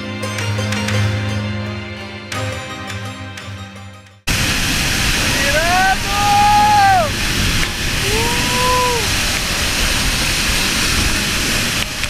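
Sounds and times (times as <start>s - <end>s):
waterfall roaring: 4.3s - 12.0s.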